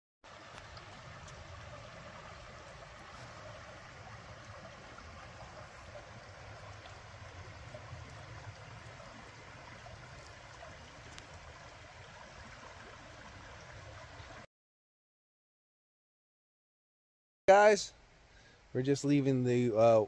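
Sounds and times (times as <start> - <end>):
creek running over rocks: 0.2 - 14.5.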